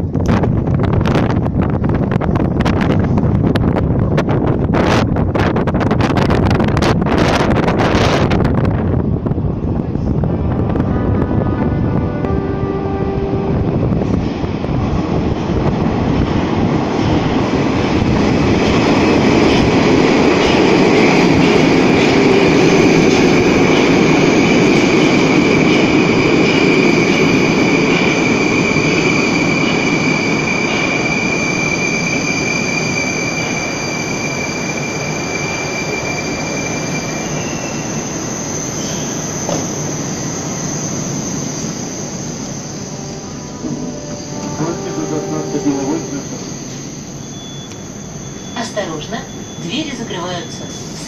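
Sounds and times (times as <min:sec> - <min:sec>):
train wheels rushing: 0:13.6 - 0:42.9
steady high whine: 0:39.5 - 0:51.0.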